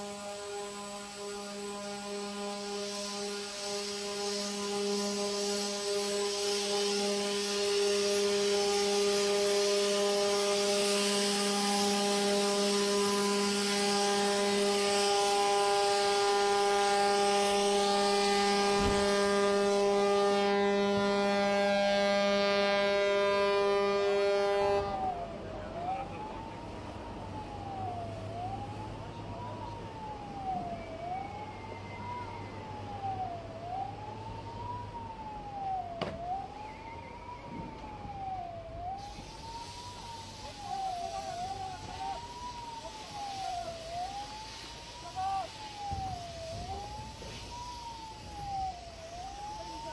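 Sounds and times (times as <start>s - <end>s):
ship horn blast: 0.0s - 27.5s
wailing siren: 0.0s - 49.9s.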